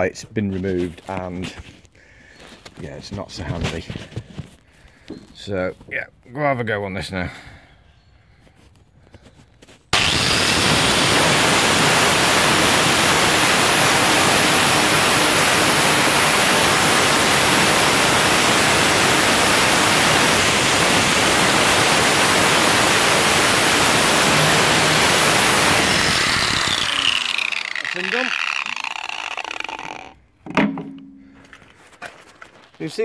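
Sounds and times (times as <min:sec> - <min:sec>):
angle grinder grinding metal: 0:09.9 - 0:30.2.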